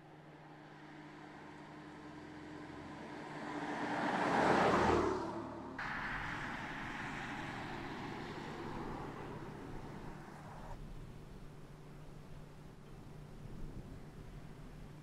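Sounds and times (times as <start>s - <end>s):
car driving past at speed: 0.7s - 10.8s
steady faint noise: 5.8s - 14.9s.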